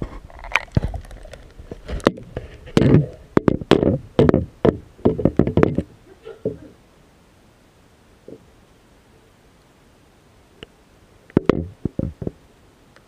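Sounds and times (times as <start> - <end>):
irregular knocks and taps: 2.8 - 6.6.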